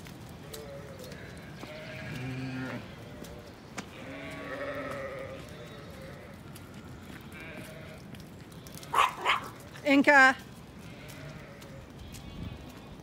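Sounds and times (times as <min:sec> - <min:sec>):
sheep bleating: 0:00.4 - 0:08.1, 0:10.8 - 0:12.8.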